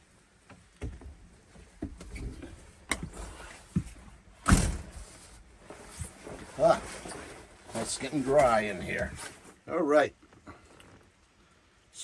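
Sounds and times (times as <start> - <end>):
loud thud: 4.4 - 5.0.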